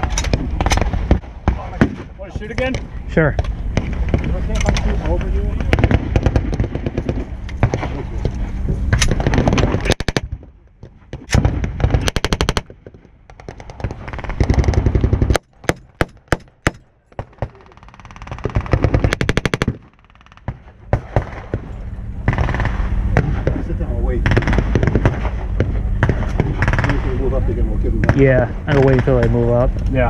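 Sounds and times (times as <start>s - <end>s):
single gunshots: 0.0s - 2.8s, 5.6s - 8.0s, 8.9s - 27.2s
distant battle gunfire: 0.0s - 8.0s, 8.9s - 27.3s
machine gun bursts: 26.0s - 27.1s.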